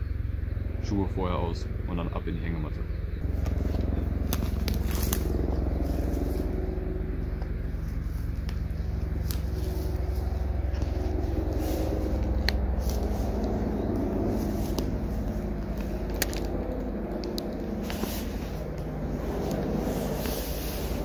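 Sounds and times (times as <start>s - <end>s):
low motor hum: 0.0s - 21.0s
sharp clicks: 14.7s - 18.0s.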